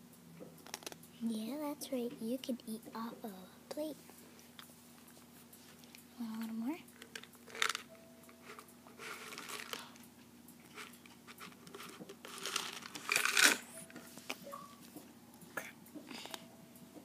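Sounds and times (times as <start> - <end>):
dry kibble rattling in plastic: 7.0 - 7.9, 9.0 - 10.0, 10.7 - 13.7.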